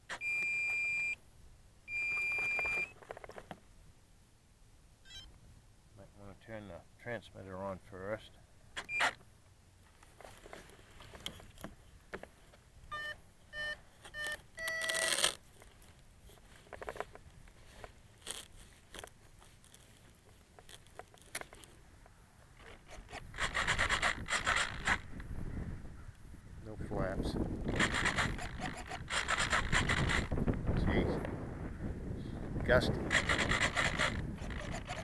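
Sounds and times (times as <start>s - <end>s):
electronic beeps: 0.2s - 1.2s, 1.9s - 2.9s, 5.1s - 5.3s
wind gust on microphone: 23.1s - 35.0s.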